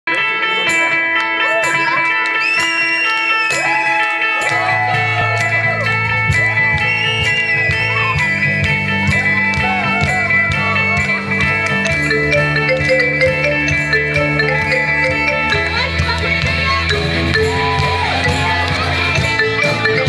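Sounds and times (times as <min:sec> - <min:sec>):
drums: 0:00.4 - 0:20.0
electric guitar lead: 0:04.2 - 0:20.0
bass guitar: 0:04.4 - 0:20.0
held guitar chords: 0:07.5 - 0:20.0.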